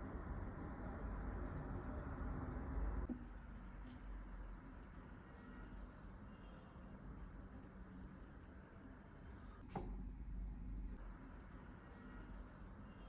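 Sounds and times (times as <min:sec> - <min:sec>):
watch ticking: 0:03.1 - 0:09.6, 0:10.9 - 0:13.0.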